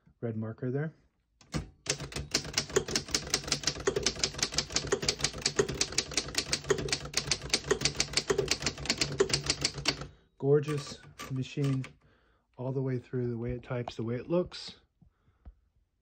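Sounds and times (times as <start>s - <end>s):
typewriter keys clacking: 1.4s - 11.9s.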